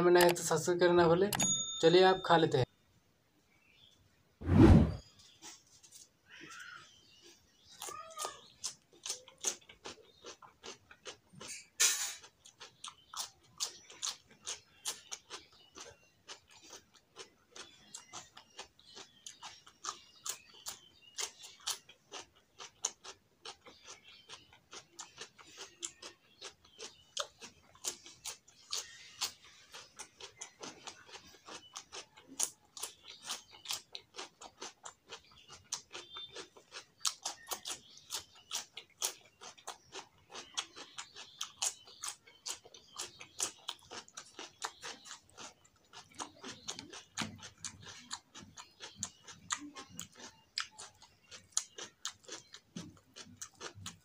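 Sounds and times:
crunching cucumber bites: 6.5 - 54.0
wet mouth chewing smacks: 12.5 - 54.0.

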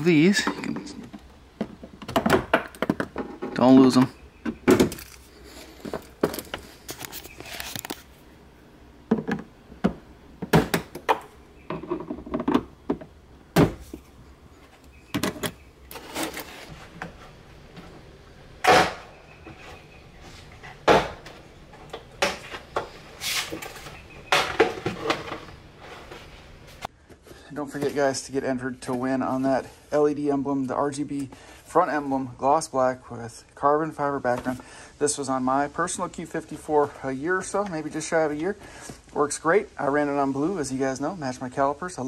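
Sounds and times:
scraping rustles: 4.8 - 8.2, 13.8 - 18.2, 18.8 - 28.3.

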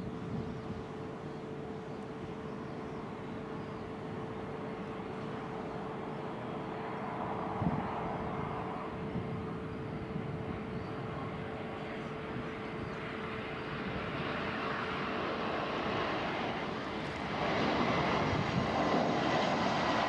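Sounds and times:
wind buffeting microphone: 0.0 - 0.9, 7.2 - 20.0
distant jet engines rumbling: 0.0 - 20.0.

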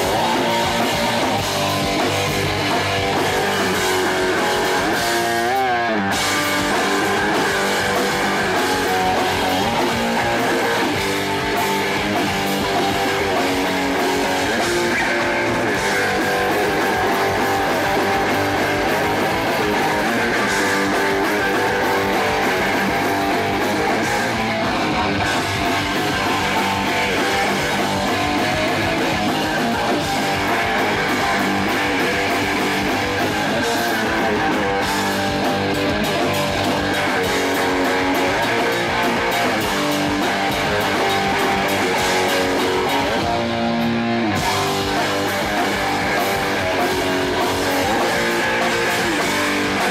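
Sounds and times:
bass guitar: 0.0 - 49.9
distorted electric guitar: 0.0 - 49.9
drum kit: 0.0 - 49.9.

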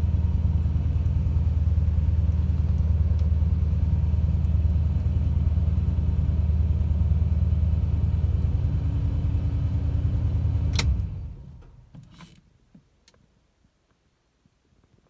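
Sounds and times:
car engine idling: 0.0 - 11.9
engine switch click: 10.6 - 12.4.

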